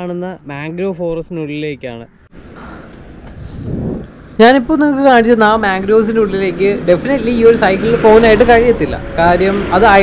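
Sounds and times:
wind rushing over microphone: 2.3s - 10.0s.

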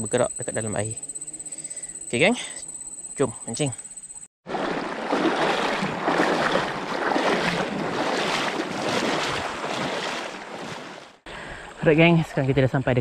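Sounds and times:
person wading through water: 4.4s - 11.8s.

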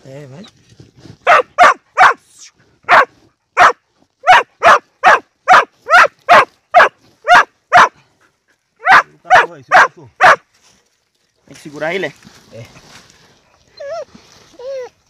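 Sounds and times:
dog barking sharply: 1.2s - 2.2s, 2.9s - 8.0s, 8.8s - 10.4s.

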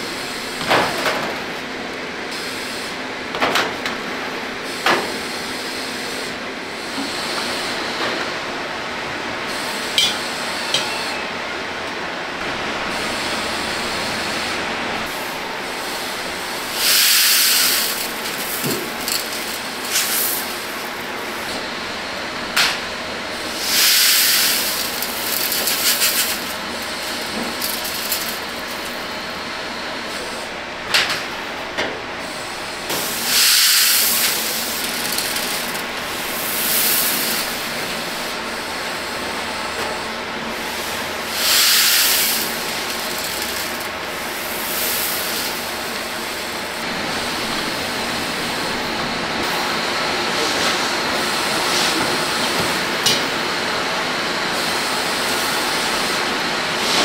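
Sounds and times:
steady hiss: 15.3s - 21.7s, 23.4s - 29.4s, 40.6s - 49.7s
snack pellets rattling into bin: 16.8s - 20.8s, 23.6s - 29.1s, 33.9s - 37.5s, 41.5s - 45.6s.

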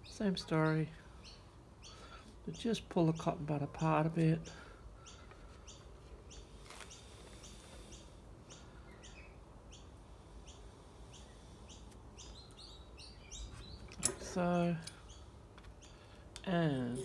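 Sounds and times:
bird chirping: 4.4s - 17.0s.

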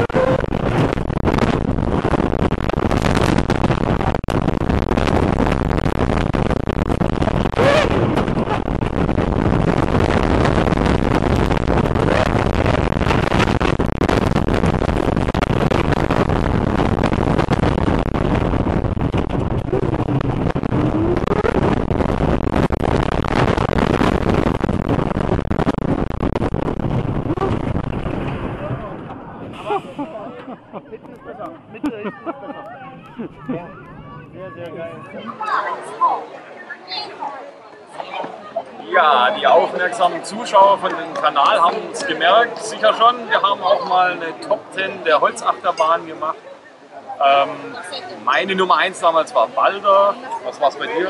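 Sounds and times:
roller coaster rumble and clatter: 0.0s - 35.9s
wind buffeting microphone: 0.0s - 37.0s.

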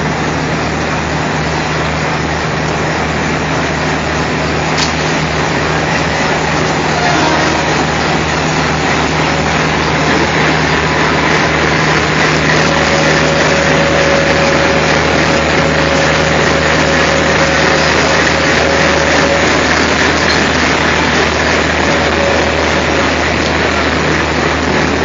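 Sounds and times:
model locomotive diesel drone: 0.0s - 25.0s
model train rolling: 0.0s - 25.0s.

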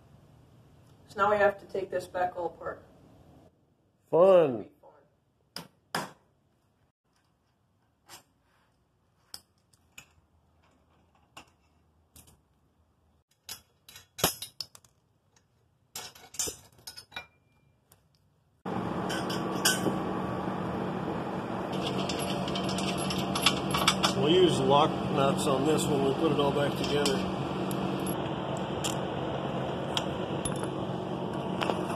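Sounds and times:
steady hissing hum: 18.7s - 31.9s
metal tools clinking: 19.0s - 19.9s, 21.7s - 24.4s, 26.5s - 28.2s.

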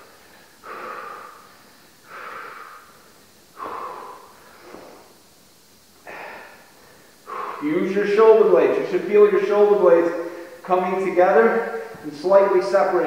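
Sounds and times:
man breathing hard: 0.0s - 5.2s, 6.0s - 7.8s, 10.2s - 10.6s, 11.6s - 12.0s.

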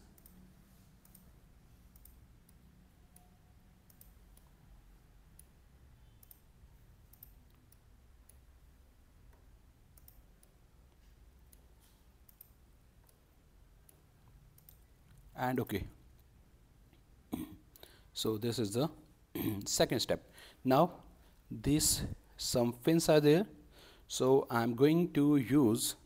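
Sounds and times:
computer mouse clicks: 0.0s - 4.6s, 5.3s - 8.5s, 9.3s - 15.3s
faint low hum: 0.0s - 26.0s.

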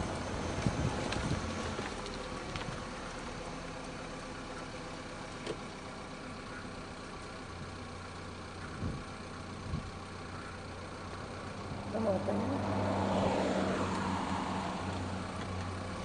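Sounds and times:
car engine hum: 0.0s - 16.0s
road noise inside car: 0.0s - 16.0s
wind buffeting microphone: 0.5s - 1.6s.

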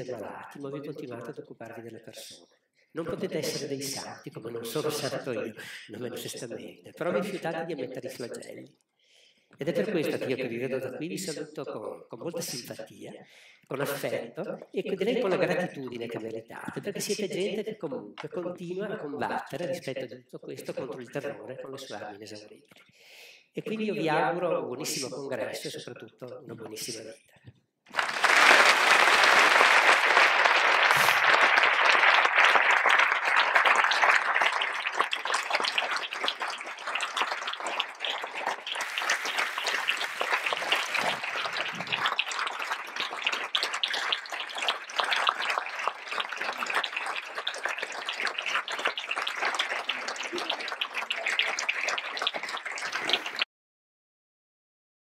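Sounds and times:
audience applauding: 27.9s - 53.5s.

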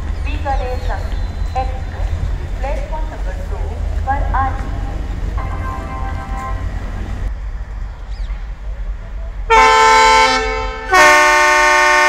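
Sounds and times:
low engine rumble: 0.0s - 9.7s
locomotive horn blast: 5.3s - 7.3s, 9.5s - 12.0s.

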